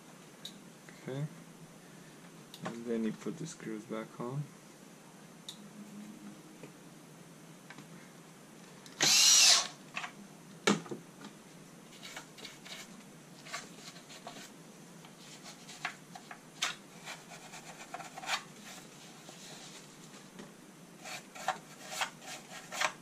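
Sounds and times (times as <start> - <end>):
electric screwdriver running: 9.0 - 9.8.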